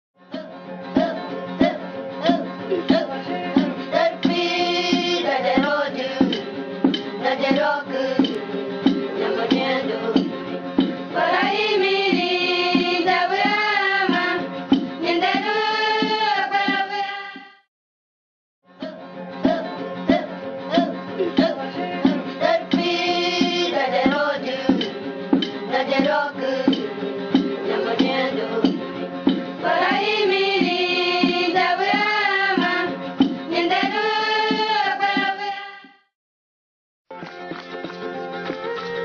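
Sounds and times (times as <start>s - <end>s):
percussion beat: 0.3s - 17.5s, 18.8s - 36.0s, 37.1s - 39.0s
person singing: 18.8s - 24.8s.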